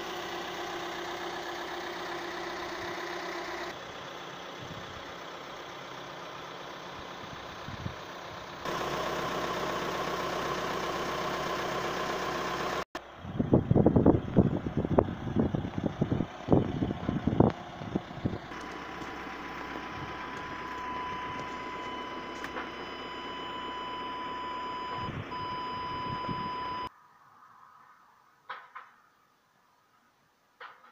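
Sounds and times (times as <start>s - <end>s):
diesel engine idling: 0.0s - 26.9s
wind buffeting microphone: 13.2s - 18.4s
parking sensor beep: 20.0s - 26.9s.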